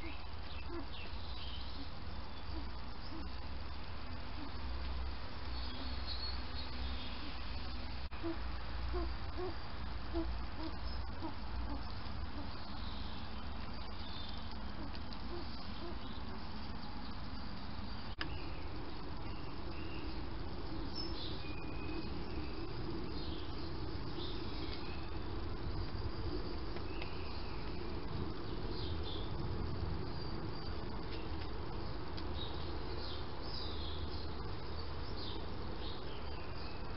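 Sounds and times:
faint bird chirps: 0.0 - 25.4.

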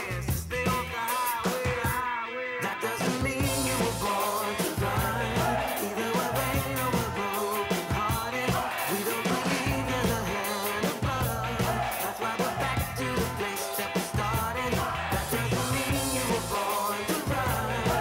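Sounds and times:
live rock music: 0.0 - 18.0
person singing: 0.0 - 18.0.

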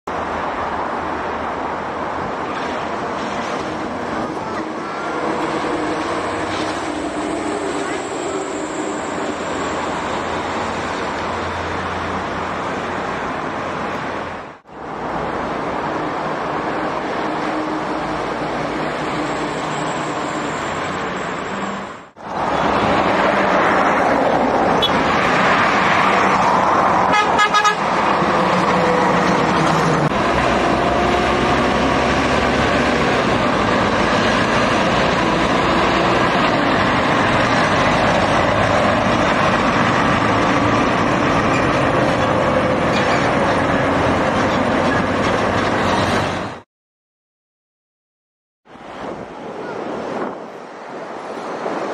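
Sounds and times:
highway traffic passing: 0.0 - 46.6, 48.6 - 51.9
vehicle horn short blasts: 27.1 - 27.8.

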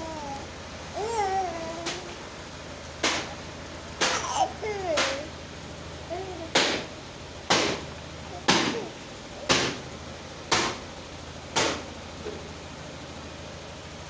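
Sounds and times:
baby swing creaking: 0.0 - 2.1
steady low hum: 0.0 - 14.0.

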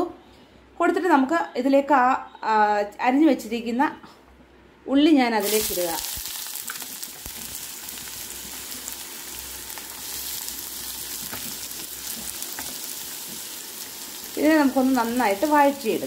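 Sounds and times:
onion sizzling in oil: 5.4 - 16.0.

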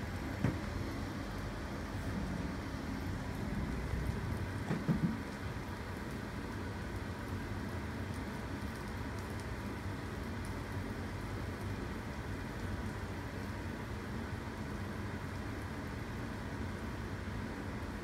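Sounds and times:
household hum and hiss: 0.0 - 18.0.

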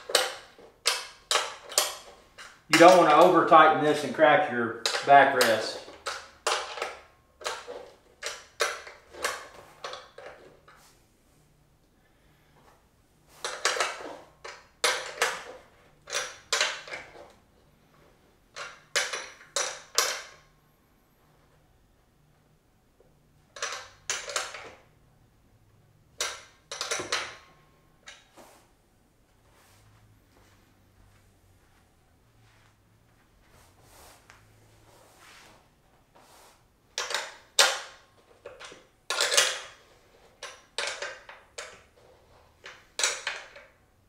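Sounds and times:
metal wrench clicking on bolts: 0.0 - 4.0, 4.8 - 10.4, 13.4 - 17.0, 18.6 - 20.4, 23.6 - 24.8, 26.2 - 27.4, 37.0 - 39.8, 40.4 - 41.8.

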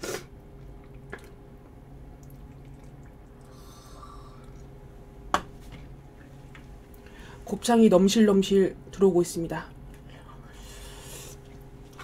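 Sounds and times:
faint hum: 0.0 - 12.0
broth sloshing and dripping: 2.1 - 3.7.

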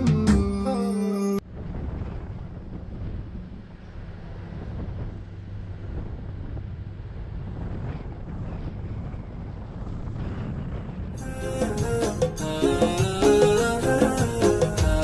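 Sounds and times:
car driving on sandy track: 1.4 - 11.2
wind buffeting microphone: 1.4 - 15.0.

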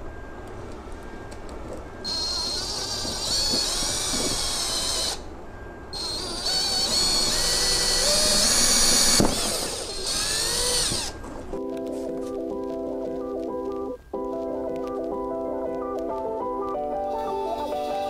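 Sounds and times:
power drill whining through plastic: 2.0 - 5.2, 6.0 - 11.4, 17.0 - 18.0.

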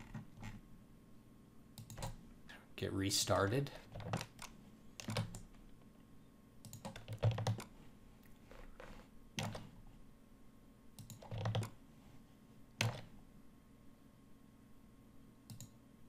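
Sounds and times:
mouse and keyboard clicks: 1.8 - 2.2, 15.5 - 15.8.

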